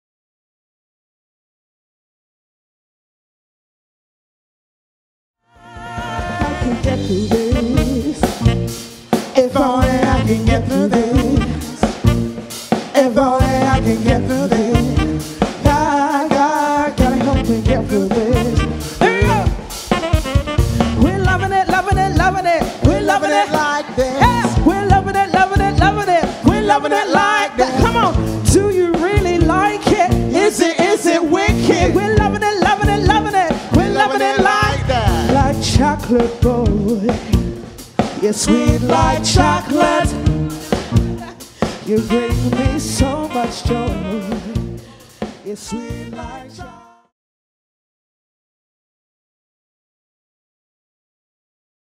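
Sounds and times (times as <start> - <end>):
person singing: 5.5 - 20.2, 20.8 - 47.1
horns: 5.5 - 36.2, 38.1 - 47.0
drum kit beat: 5.6 - 46.8
live band playing upbeat song: 5.6 - 47.0.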